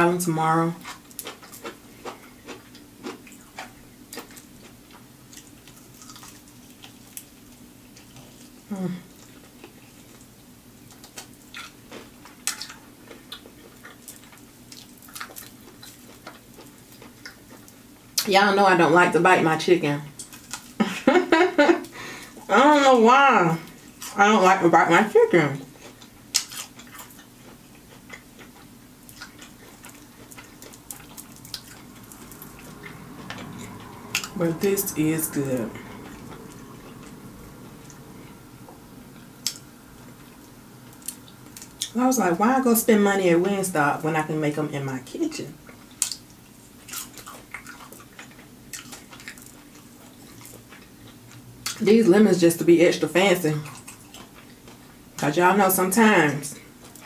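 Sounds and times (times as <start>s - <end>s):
crackly chewing: 0.6s - 18.3s, 20.1s - 22.5s, 25.5s - 42.0s, 45.6s - 52.0s, 53.5s - 55.2s, 56.5s - 57.0s.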